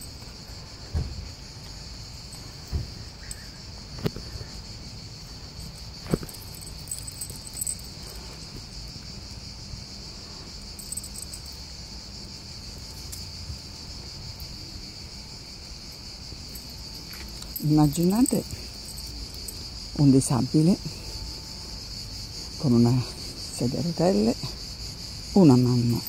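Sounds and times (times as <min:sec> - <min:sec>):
insects droning: 0:00.0 - 0:26.0
thump: 0:00.9 - 0:01.3, 0:02.6 - 0:03.0.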